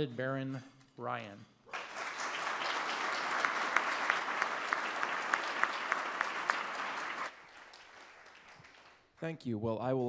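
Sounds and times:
audience applauding: 1.7 - 9.1
sharp close hand claps: 1.7 - 9.3.

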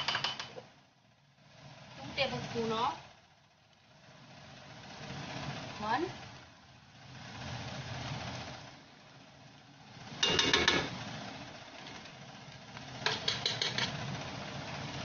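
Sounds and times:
metal spoon tapping pot rim: 0.0 - 0.6, 13.1 - 13.9.

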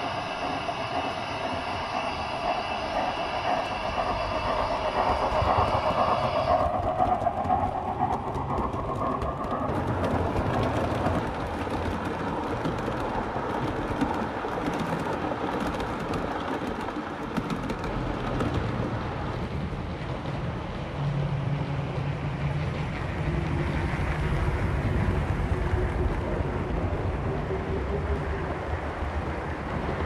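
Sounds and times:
model train whine: 0.0 - 18.0
model train wheels rumbling: 0.0 - 30.0.

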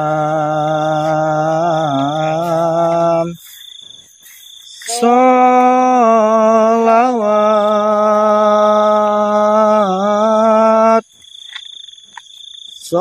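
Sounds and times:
person chanting: 0.0 - 3.6, 4.6 - 11.0.

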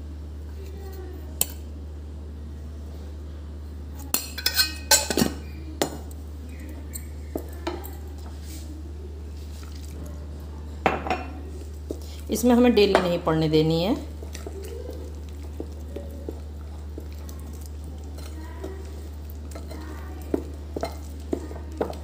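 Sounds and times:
spatula clinking on glass bowl: 4.2 - 5.4, 19.4 - 22.0.

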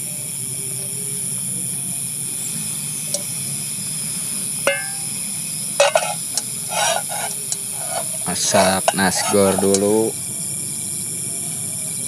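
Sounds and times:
steady hiss: 2.0 - 11.2
cookware clattering and rattling: 4.7 - 5.1, 5.8 - 10.0
metal cookware clinking: 4.7 - 5.2, 5.8 - 10.0.

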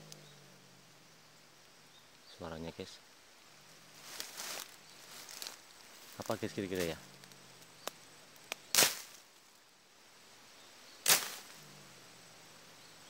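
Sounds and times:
faint low animal growl: 0.0 - 1.3, 6.6 - 7.9, 11.5 - 12.7.

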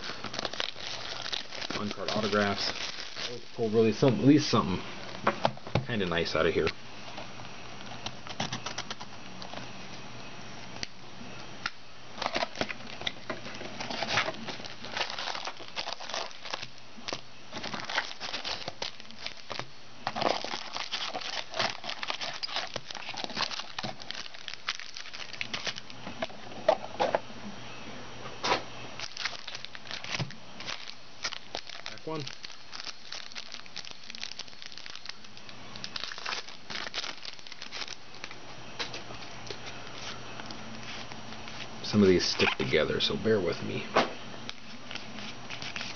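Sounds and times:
foil packs crinkling: 0.0 - 5.2, 7.8 - 9.5, 12.1 - 26.4, 29.0 - 42.8, 44.5 - 45.9.

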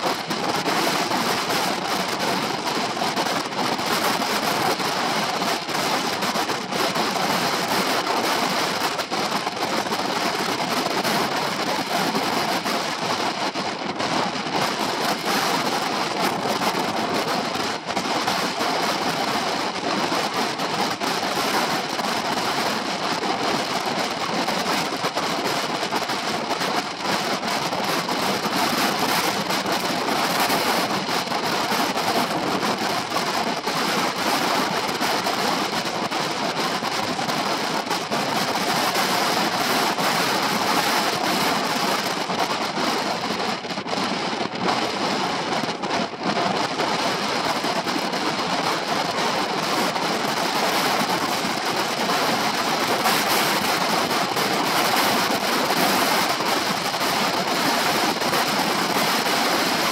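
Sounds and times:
wind rushing over microphone: 0.0 - 56.1.

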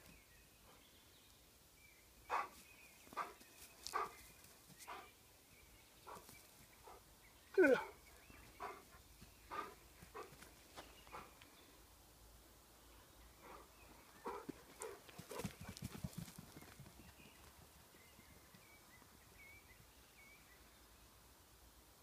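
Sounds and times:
dog barking and yipping: 3.9 - 4.1, 8.6 - 8.8, 9.5 - 10.3.

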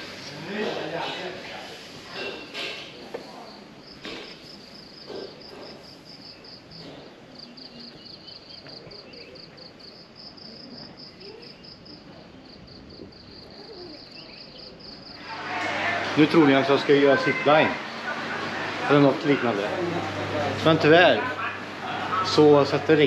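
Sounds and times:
soft outdoor background noise: 0.0 - 23.0
insects chirping: 2.5 - 15.2.

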